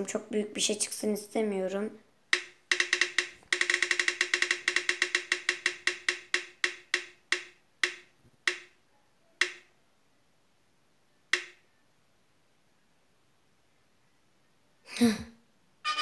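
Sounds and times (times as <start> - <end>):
spinning wheel app ticks: 2.3 - 8.7, 9.4 - 9.6, 11.3 - 11.6.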